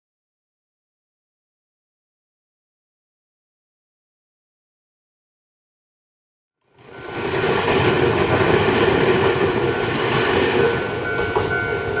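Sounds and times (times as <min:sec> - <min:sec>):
electric train rumbling: 0:06.7 - 0:12.0.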